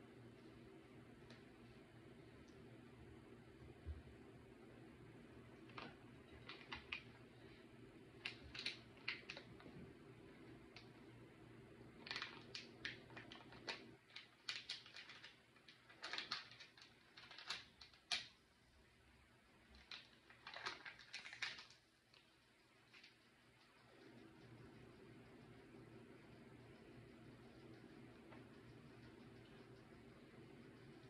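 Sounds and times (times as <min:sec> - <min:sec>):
plastic packet crinkling: 0:05.7 - 0:07.2, 0:08.2 - 0:09.7, 0:12.0 - 0:18.4, 0:19.7 - 0:22.3.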